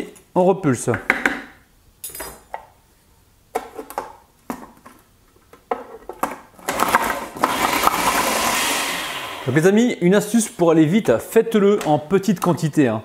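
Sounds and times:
food processor chopping: 6.7 - 9.6.

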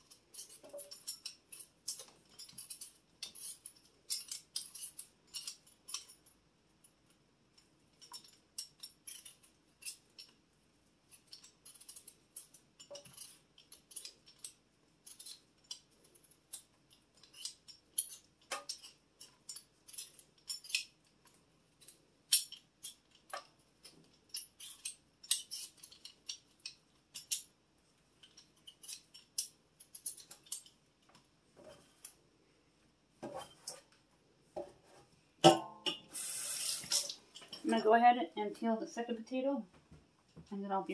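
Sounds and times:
peeler scraping potato skin: 24.3 - 27.4.

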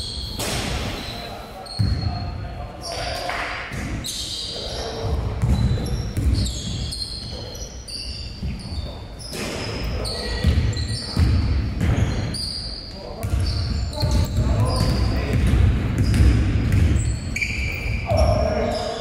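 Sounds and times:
sneakers squeaking: 0.0 - 19.0
basketball bouncing: 5.4 - 6.6, 10.4 - 12.2, 13.2 - 17.3.

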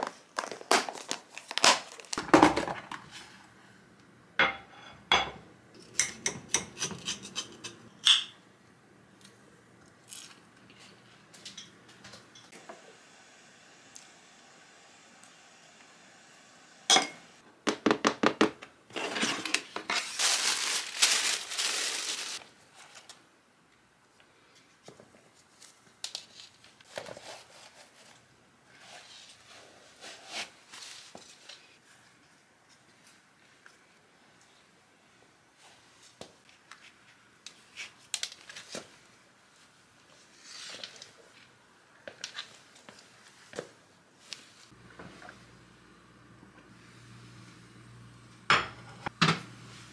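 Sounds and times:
crinkling: 0.0 - 2.7, 18.9 - 23.2.

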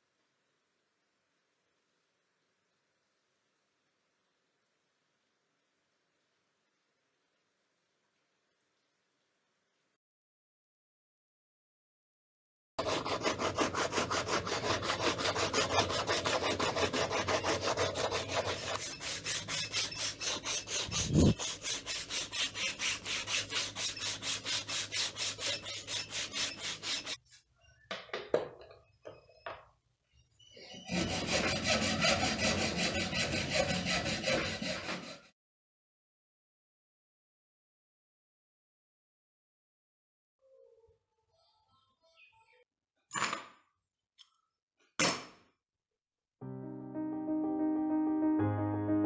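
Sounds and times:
abrasive strokes on steel blade: 15.5 - 27.2.

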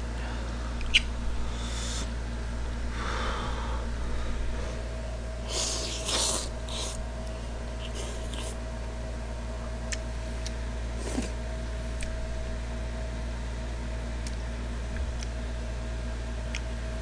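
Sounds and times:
steady low hum: 0.0 - 17.0
soft breath: 2.9 - 6.0
person slurping noodles: 5.5 - 7.0, 7.8 - 8.6.

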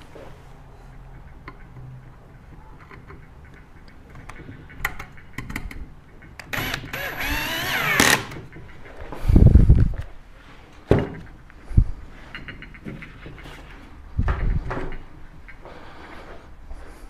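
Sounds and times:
drill clicks: 6.4 - 8.4
drill motor whine: 6.6 - 8.1.

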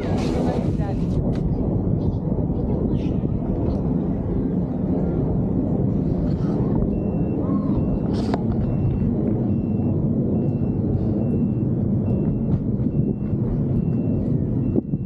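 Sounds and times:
wind buffeting microphone: 0.0 - 15.0
faint high pulsing tone: 6.7 - 15.0.

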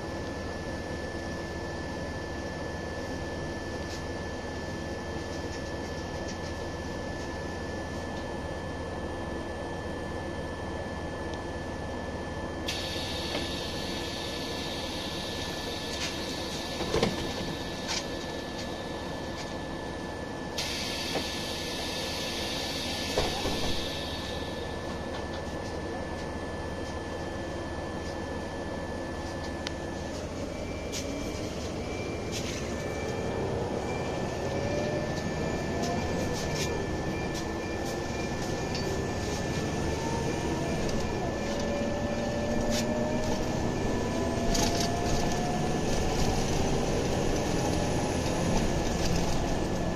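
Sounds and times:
bus engine whine: 0.0 - 49.9
bus accelerating: 10.1 - 49.9.

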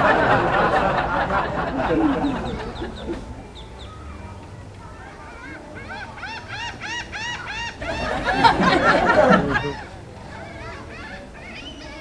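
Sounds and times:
gull laughing call: 0.0 - 3.4, 7.8 - 9.8
people's voices: 0.0 - 3.6, 7.8 - 12.0.

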